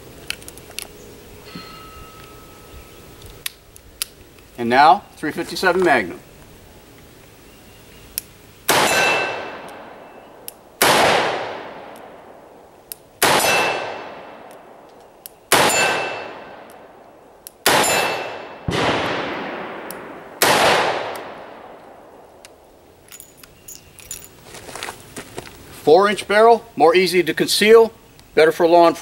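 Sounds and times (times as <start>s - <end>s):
steel gong target ringing: 1.4s - 2.7s, 8.8s - 9.6s
revolver gunshots: 8.7s - 10.1s, 10.8s - 12.5s, 13.2s - 14.8s, 15.5s - 17.0s, 17.6s - 22.2s.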